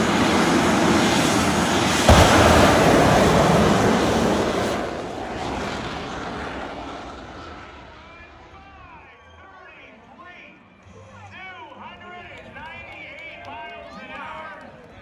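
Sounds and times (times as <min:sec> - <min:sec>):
motorcycle roaring at full throttle: 0:00.0 - 0:08.0.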